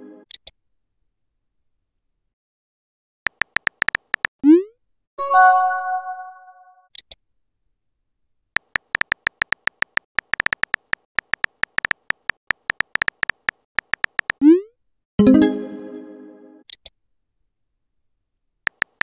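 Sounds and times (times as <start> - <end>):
virtual keyboard key clicks: 3.3 - 4.3, 8.6 - 14.4, 18.7 - 19.0
bright message chime: 5.2 - 6.5, 15.2 - 16.2.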